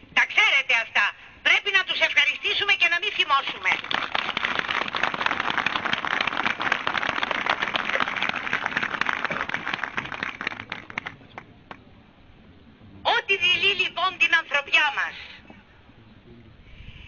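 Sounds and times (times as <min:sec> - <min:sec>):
crowd applauding: 0:03.7 - 0:11.8.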